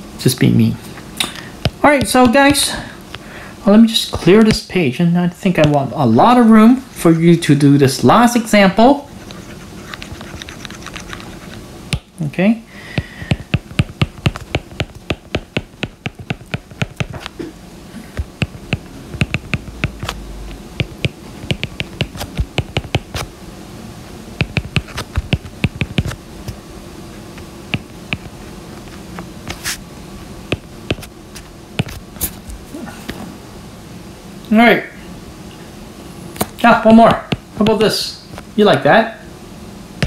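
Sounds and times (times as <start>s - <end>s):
stylus tapping on glass screen: 18.4s - 20.1s, 20.8s - 23.0s, 24.4s - 26.0s.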